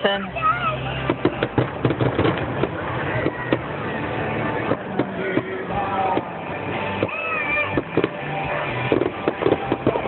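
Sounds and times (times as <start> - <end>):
fireworks banging and crackling: 0.7 - 10.0
music playing: 2.1 - 10.0.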